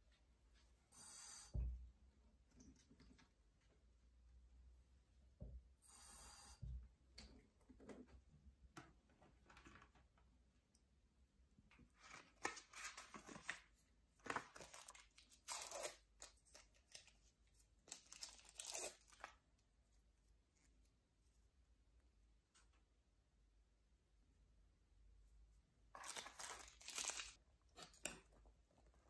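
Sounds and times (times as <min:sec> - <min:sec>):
paper wrappers ripping and crinkling: 0:14.2 - 0:17.1, 0:17.9 - 0:19.4, 0:26.0 - 0:27.4.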